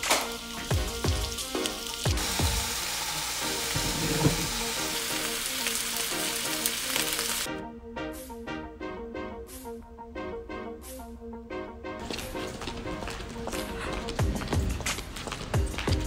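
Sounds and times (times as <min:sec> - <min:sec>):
onions and chicken sizzling in a pan: 0:00.0 - 0:07.5
background music: 0:00.0 - 0:16.0.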